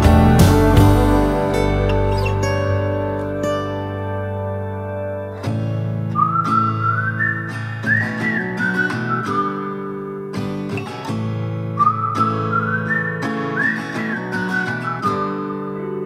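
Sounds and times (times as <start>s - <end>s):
strummed acoustic guitar: 0.0s - 16.0s
whistled melody: 0.4s - 4.3s, 6.0s - 10.1s, 11.7s - 16.0s.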